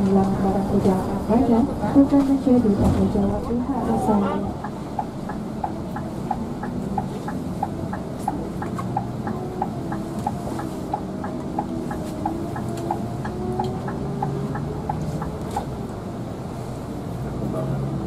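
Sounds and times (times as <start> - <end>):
bus engine hum: 0.0 - 18.0
turn signal ticking: 4.0 - 16.4.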